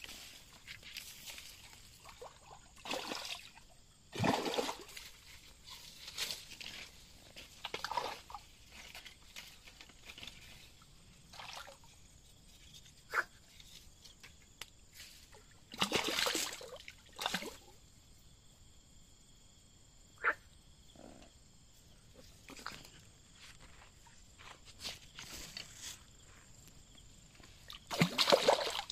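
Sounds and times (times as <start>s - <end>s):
fish splashing in water: 2.0s - 5.2s, 15.7s - 17.6s, 27.7s - 28.9s.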